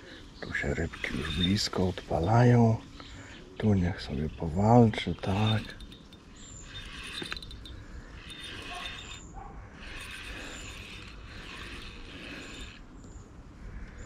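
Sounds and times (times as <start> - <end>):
fishing reel whirring: 0.5 - 2.4, 3.9 - 12.9.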